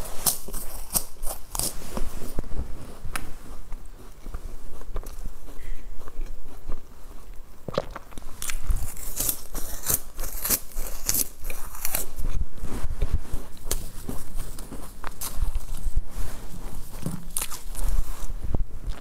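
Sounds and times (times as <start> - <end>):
crunchy bites and chewing: 0.0 - 1.8, 3.8 - 12.3, 17.0 - 17.9.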